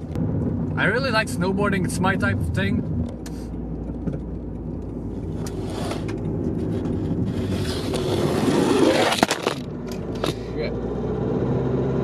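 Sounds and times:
car engine and tyres rumble: 0:00.0 - 0:12.0
dashboard camera rustle and knocks: 0:03.0 - 0:10.4.

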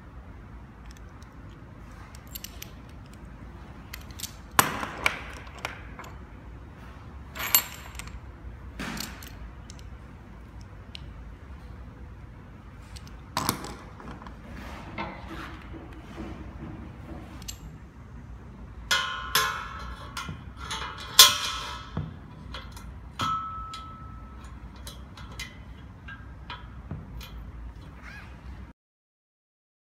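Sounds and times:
metallic clicks and clanks: 0:00.8 - 0:06.3, 0:08.8 - 0:10.0, 0:18.9 - 0:27.9.

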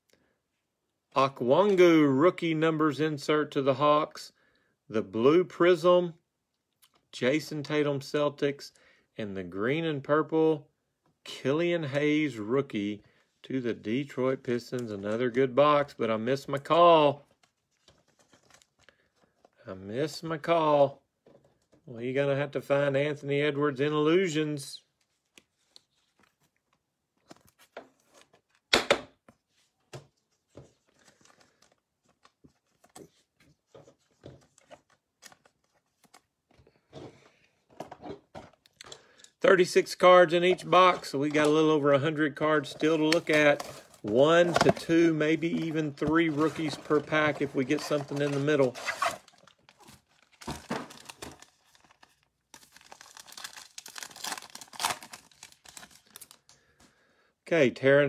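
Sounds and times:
cards clicking and rustling: 0:25.1 - 0:37.2, 0:42.6 - 0:56.5
foil wrapper crinkling and tearing: 0:45.4 - 0:56.5.

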